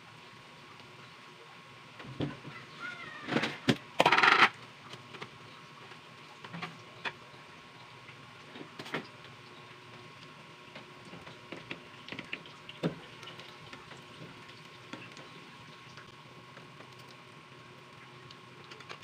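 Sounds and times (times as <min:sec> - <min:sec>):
oil popping and crackling: 0:08.0 - 0:19.0.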